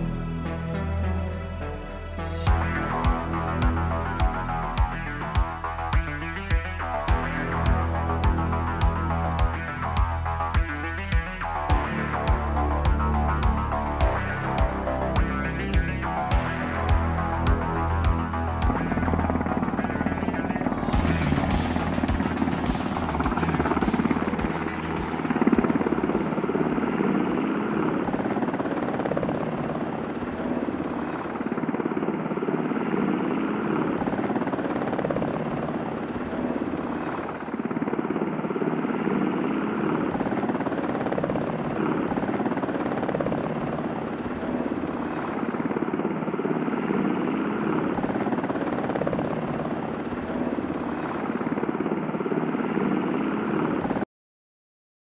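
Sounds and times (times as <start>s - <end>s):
helicopter rotor and engine: 0.0s - 54.1s.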